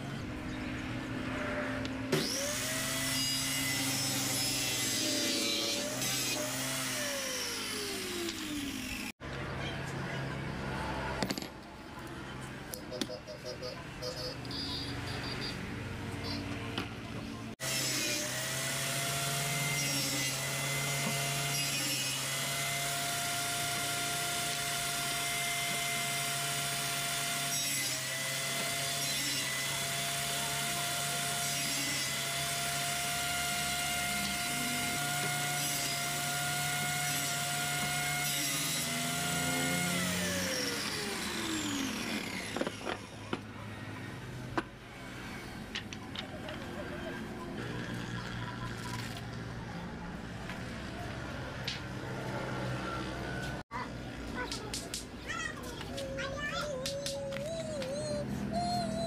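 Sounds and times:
table saw whining: 1.6 - 9.2, 17.6 - 44.0.

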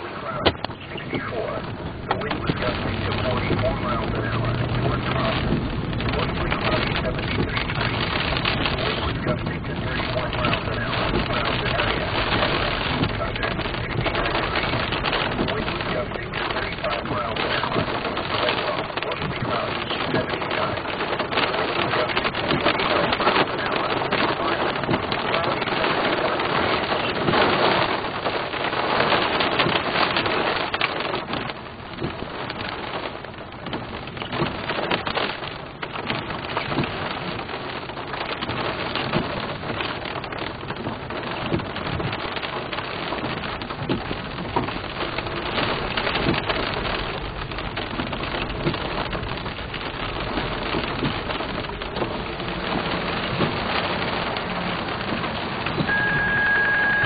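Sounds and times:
rain pattering on a vehicle: 0.0 - 57.0
short high beep: 55.9 - 57.0.

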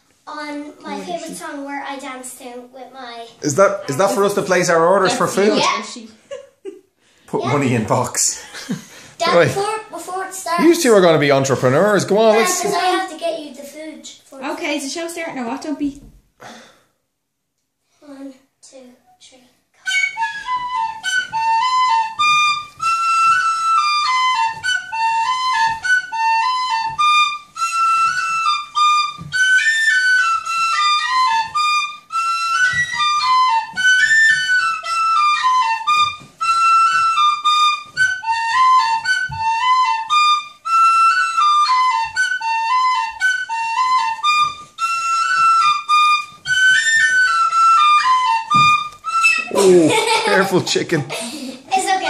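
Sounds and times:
tin whistle tune: 19.8 - 49.6
dance steps thumping on floor: 32.5 - 34.6, 48.5 - 49.0.

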